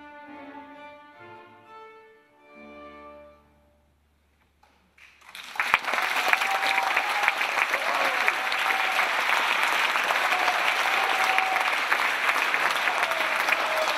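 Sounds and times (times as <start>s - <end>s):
accordion and string orchestra: 0.0s - 3.9s
audience applause: 5.0s - 13.9s.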